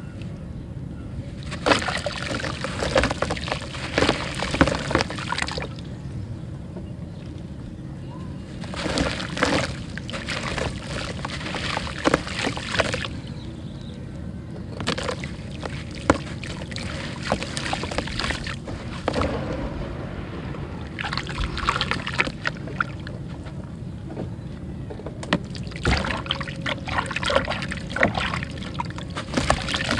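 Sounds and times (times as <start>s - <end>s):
steady low rumble: 0.0s - 29.9s
mud crumbling into water: 1.4s - 5.9s, 8.5s - 13.3s, 14.7s - 23.2s, 25.3s - 29.9s.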